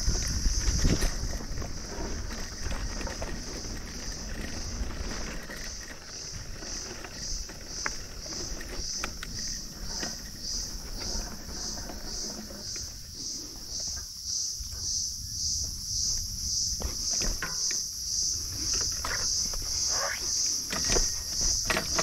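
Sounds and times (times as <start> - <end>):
bike rolling over grass and dirt: 0.0 - 22.0
insects chirping: 0.0 - 22.0.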